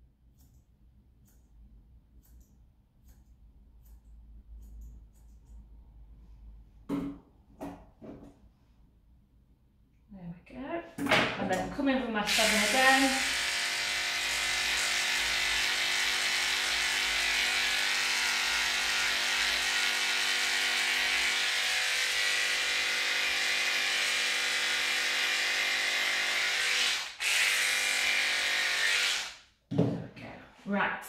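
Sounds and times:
electric clippers buzzing: 0:12.3 - 0:29.4.

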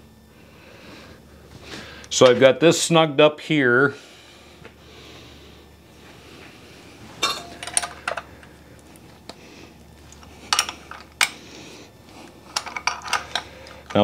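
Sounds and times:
faint steady hum: 0:00.0 - 0:14.0
metal tools clinking: 0:07.2 - 0:08.2.

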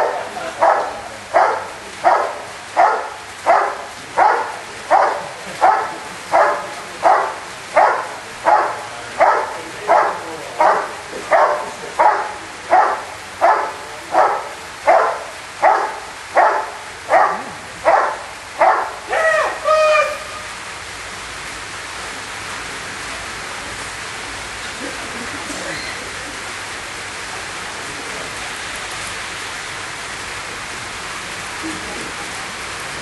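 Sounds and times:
dog barking: 0:00.0 - 0:19.2.

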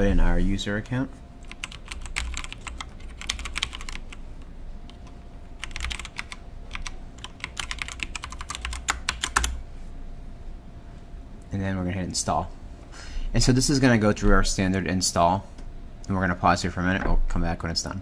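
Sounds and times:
typing on computer keyboard: 0:01.4 - 0:04.2, 0:04.9 - 0:09.6.

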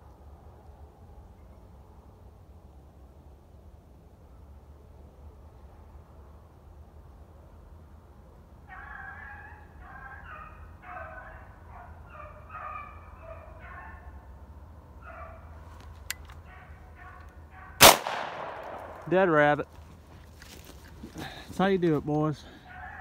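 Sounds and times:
hounds baying: 0:08.7 - 0:14.3, 0:15.0 - 0:15.6, 0:16.4 - 0:17.8, 0:22.2 - 0:23.0.

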